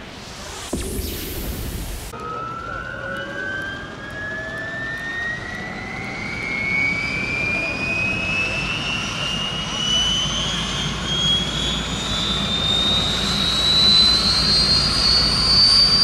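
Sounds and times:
brief whoosh: 0:00.0 - 0:02.2
helicopter turbine spooling up: 0:00.0 - 0:16.0.

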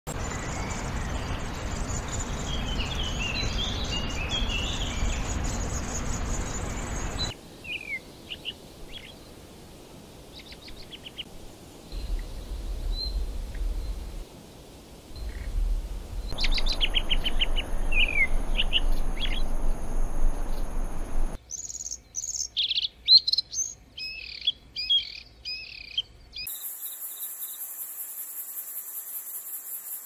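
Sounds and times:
songbird varied song: 0:00.1 - 0:09.5, 0:10.2 - 0:30.0
steady hiss: 0:00.2 - 0:21.4
high pulsing insect-like trill: 0:15.2 - 0:21.4.

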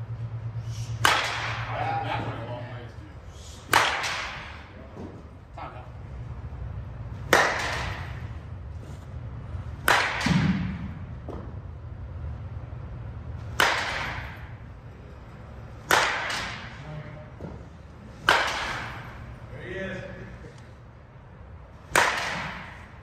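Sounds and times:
bat hitting softballs: 0:00.8 - 0:02.3, 0:03.6 - 0:05.1, 0:07.1 - 0:08.5, 0:09.4 - 0:11.8, 0:13.4 - 0:14.8, 0:15.6 - 0:19.4, 0:21.7 - 0:23.0.

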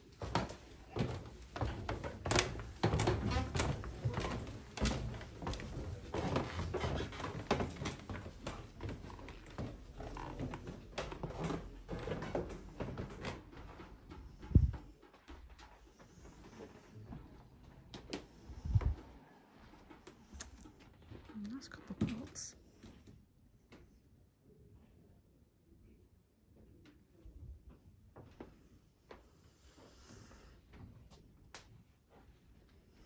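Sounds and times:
footsteps on wooden stairs: 0:00.0 - 0:17.4.

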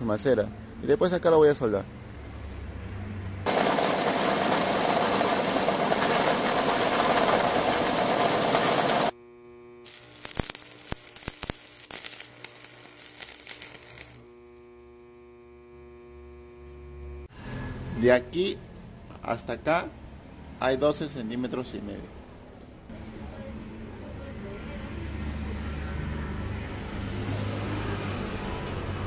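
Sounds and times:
welder electrical hum: 0:03.4 - 0:19.1
welding arc hissing: 0:03.5 - 0:09.2, 0:09.8 - 0:14.3
crackles: 0:09.8 - 0:14.6.

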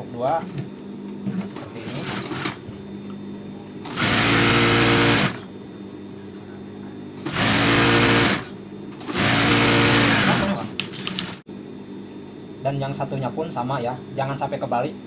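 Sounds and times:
sewing machine stitching: 0:03.9 - 0:05.4, 0:07.2 - 0:11.4.

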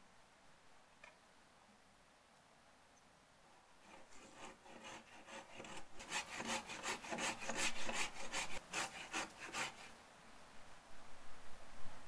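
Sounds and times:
hand saw cutting a log: 0:03.9 - 0:09.9.

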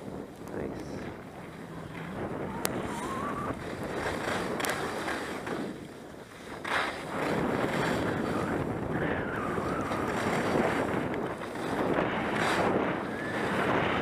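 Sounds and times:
skis scraping over snow: 0:00.0 - 0:14.0
wind rushing over microphone: 0:00.0 - 0:14.0.

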